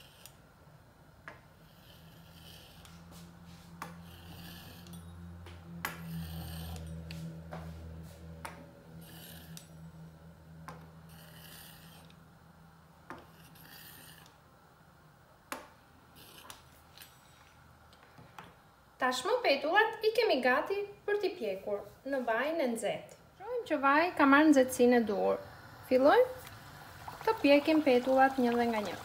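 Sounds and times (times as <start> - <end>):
low steady hum: 0.0 - 29.0
pizza cutter rasping through dough: 1.6 - 4.9, 5.9 - 7.3, 9.0 - 9.6, 11.1 - 12.1, 13.2 - 14.3.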